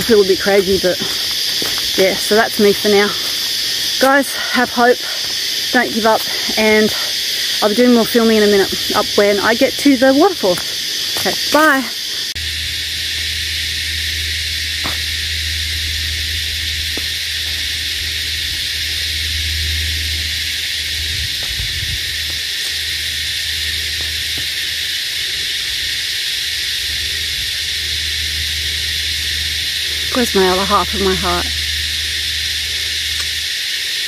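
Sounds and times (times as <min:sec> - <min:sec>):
insects chorus: 0:00.0 - 0:34.0
low hum: 0:12.2 - 0:34.0.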